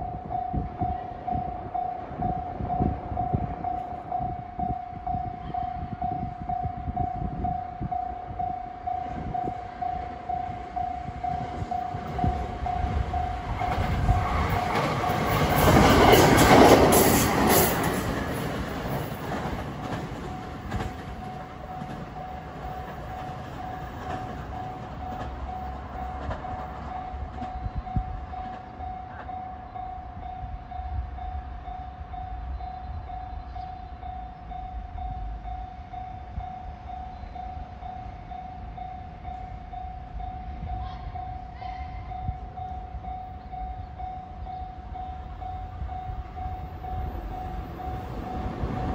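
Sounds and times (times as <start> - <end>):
crossing alarm bell ringing: 0.0 - 48.9
electric train passing: 0.0 - 48.9.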